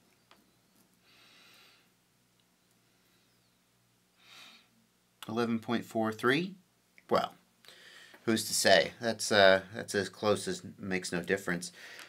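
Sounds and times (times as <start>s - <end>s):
soft breaths: 0.4s - 2.0s, 2.6s - 4.8s, 7.6s - 8.3s, 11.7s - 12.0s.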